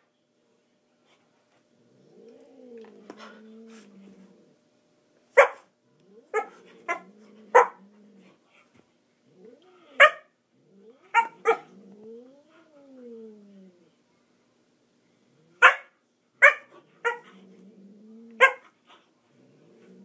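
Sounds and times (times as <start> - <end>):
dog growling wail: 1.9 - 4.6, 9.3 - 10.0, 10.6 - 13.9, 17.0 - 18.5
dog play barks: 11.1 - 11.7.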